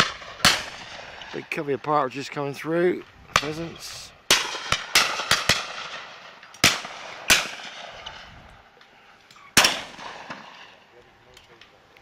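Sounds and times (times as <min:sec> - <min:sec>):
shotgun shots: 0:00.0 - 0:01.3, 0:03.3 - 0:08.2, 0:09.6 - 0:10.8.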